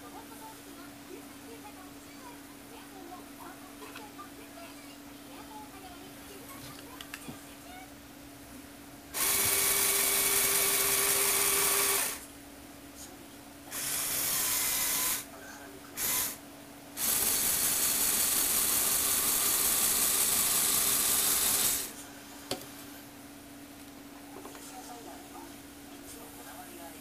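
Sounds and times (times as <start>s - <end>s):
electric motor and gears whirring: 9.1s - 12.3s, 13.7s - 15.3s, 16.0s - 16.4s, 17.0s - 22.7s.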